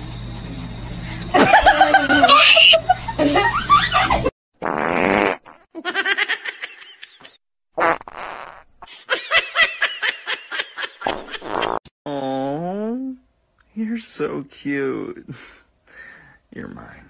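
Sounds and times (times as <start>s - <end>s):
person laughing: 1.3s - 4.3s, 8.9s - 11.8s
fart sounds: 4.6s - 5.7s, 7.8s - 8.9s, 11.0s - 12.6s.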